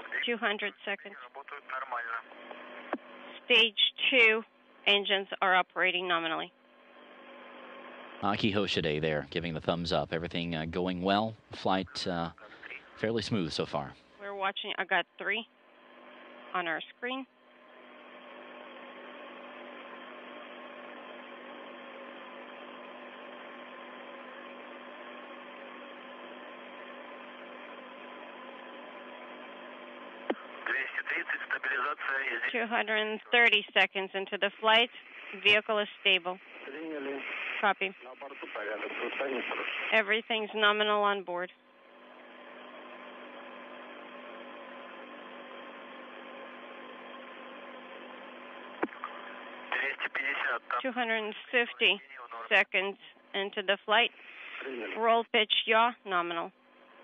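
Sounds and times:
radio static hiss: 0.0s - 4.4s, 7.8s - 13.9s, 30.1s - 41.0s, 48.3s - 53.0s, 53.6s - 55.2s
faint hum tones: 0.0s - 57.0s.

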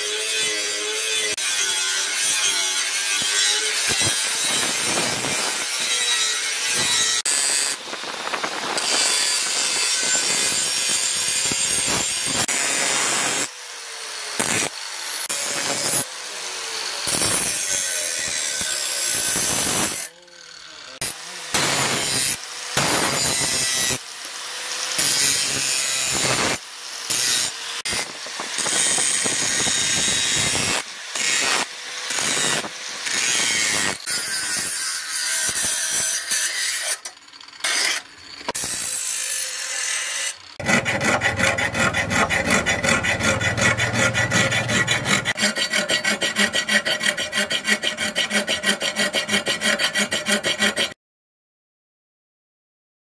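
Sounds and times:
angle grinder grinding steel: 0.0s - 51.0s
file rasping on steel: 14.4s - 51.0s.

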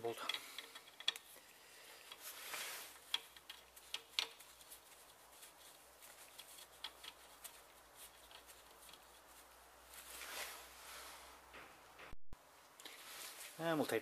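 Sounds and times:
faint metallic clicks and taps: 0.1s - 9.5s.

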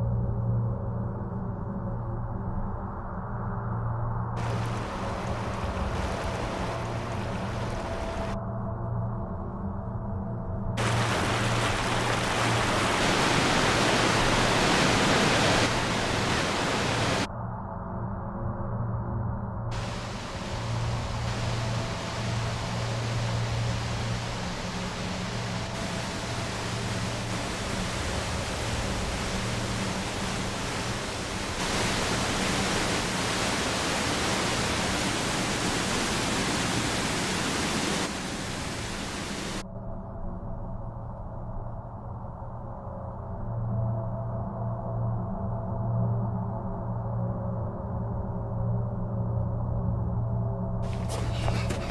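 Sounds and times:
rushing water: 4.4s - 8.4s, 10.8s - 17.3s, 19.7s - 39.6s, 50.8s - 51.9s
low music drone: 15.7s - 33.0s.

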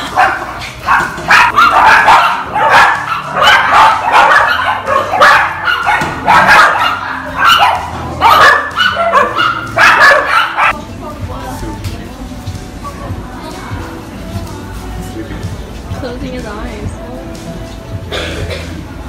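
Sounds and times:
dogs barking: 0.0s - 10.8s.

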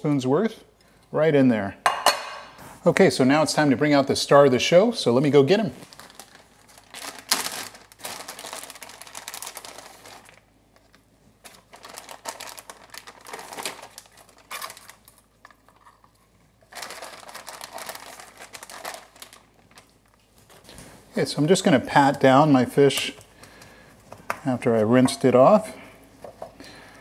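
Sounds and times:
plastic bag crinkling: 5.2s - 20.8s.

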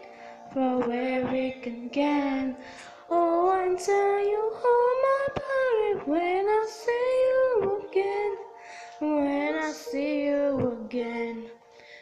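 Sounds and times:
high-pitched voice singing: 9.1s - 11.4s.

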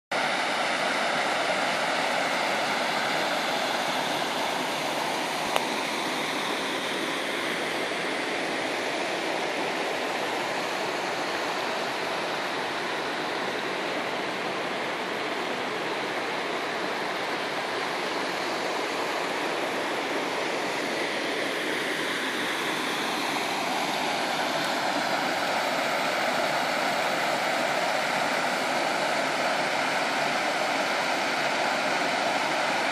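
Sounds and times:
waterfall rushing: 0.2s - 32.9s.

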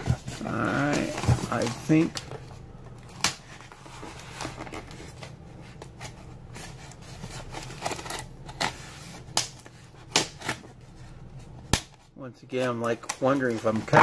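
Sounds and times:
knife cutting packing tape: 7.4s - 8.8s.

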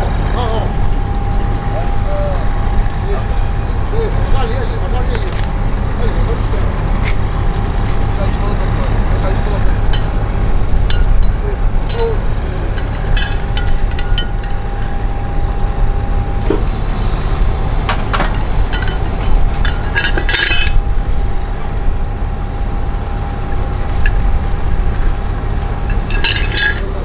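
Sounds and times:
steady low rumble: 0.0s - 27.0s
thin steady whine: 0.0s - 27.0s
metallic clinks of hook and chain: 10.9s - 14.9s, 18.2s - 20.8s, 25.9s - 26.9s.

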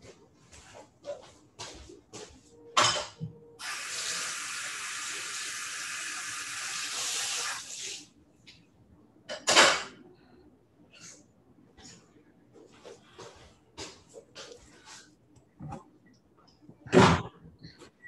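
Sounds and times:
kitchen tap running: 3.6s - 8.1s.

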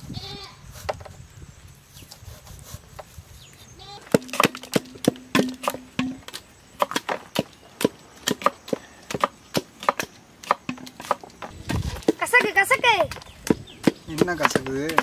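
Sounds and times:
wooden churner knocking in steel pot: 4.1s - 6.3s, 9.1s - 11.2s, 13.8s - 15.0s.

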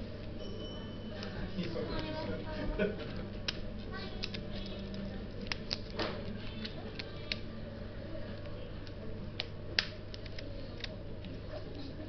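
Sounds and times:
steady low hum: 0.0s - 12.0s
small item clicking and crackling: 3.4s - 7.5s, 8.3s - 11.9s.

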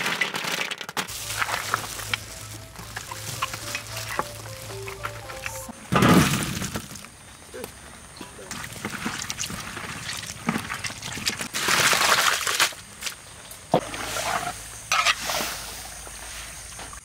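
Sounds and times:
water pouring: 1.1s - 7.1s, 8.5s - 12.8s.

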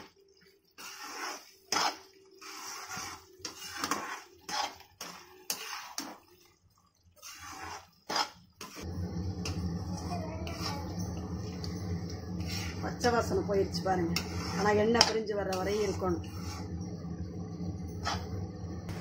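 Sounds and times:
ladle scraping a pan: 0.7s - 6.4s, 7.1s - 9.6s, 10.4s - 17.1s, 17.9s - 19.0s
low hum: 8.8s - 19.0s.

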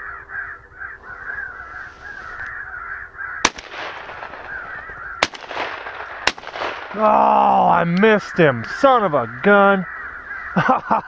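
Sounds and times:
electronic crow caws: 0.0s - 5.4s, 6.9s - 11.0s
shotgun blasts: 3.4s - 7.2s.

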